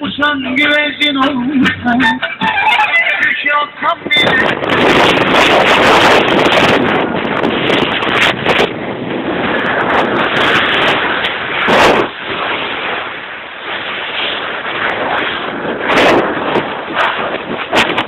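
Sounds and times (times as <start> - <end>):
wind buffeting microphone: 3.4 - 18.0.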